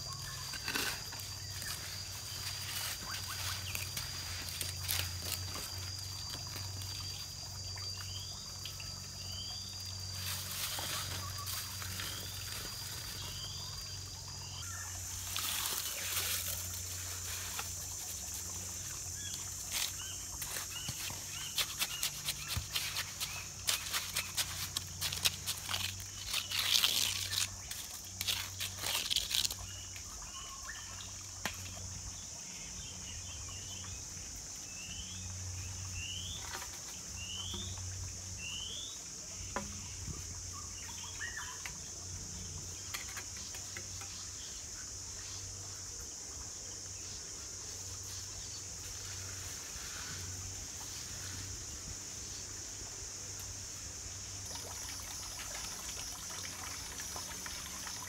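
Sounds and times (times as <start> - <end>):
insects buzzing: 0.0 - 58.0
blade scraping wet mortar: 0.2 - 1.5, 20.4 - 29.2.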